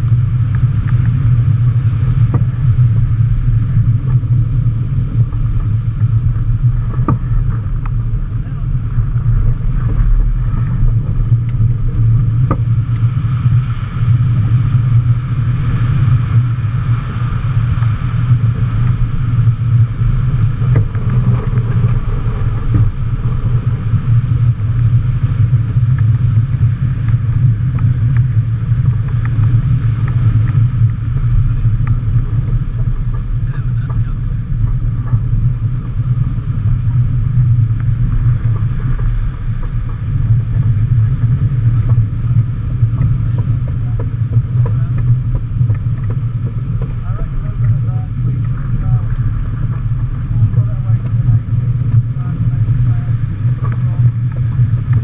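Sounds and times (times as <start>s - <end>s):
water rushing along hull: 0.0s - 55.0s
wind buffeting microphone: 0.0s - 55.0s.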